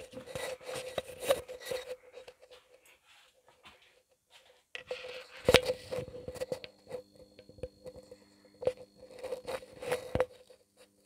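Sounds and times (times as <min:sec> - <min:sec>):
fluorescent tube humming: 0:04.8 - 0:11.0.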